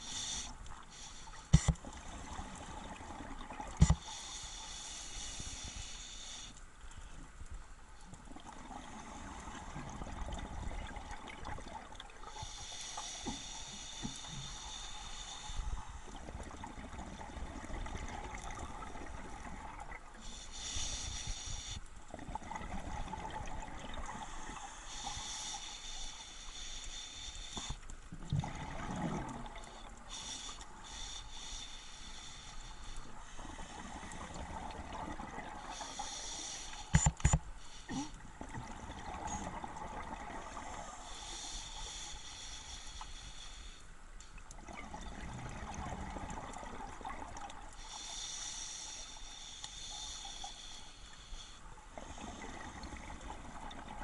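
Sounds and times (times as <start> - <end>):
regulator hissing inhale: 0.0 - 1.7, 3.8 - 6.6, 12.2 - 16.2, 20.2 - 21.9, 24.1 - 27.8, 29.6 - 34.4, 35.6 - 38.2, 40.6 - 44.0, 47.8 - 52.9
exhaled bubbles gurgling: 8.3 - 12.3, 16.1 - 20.2, 22.1 - 24.4, 28.2 - 29.9, 33.5 - 35.8, 37.9 - 41.0, 44.6 - 47.8.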